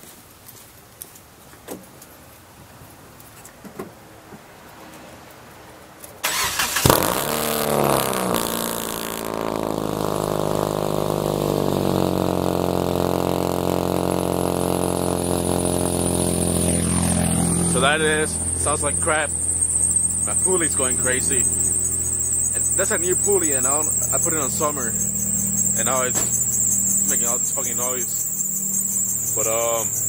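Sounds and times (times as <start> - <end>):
car engine starting and idling: 6.2 - 30.0
loud leaking exhaust: 6.2 - 30.0
high whine: 6.3 - 30.0.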